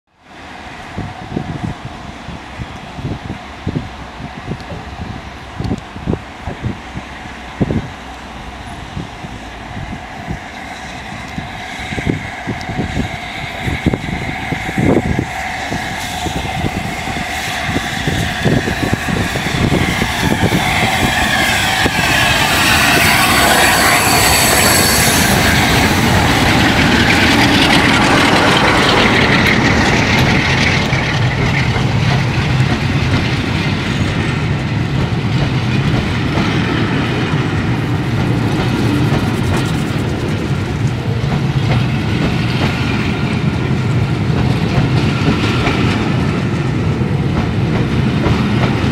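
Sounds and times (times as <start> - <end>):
steam locomotive passing: 0.1 - 48.9
wheels clattering over rail joints: 20.3 - 36.8.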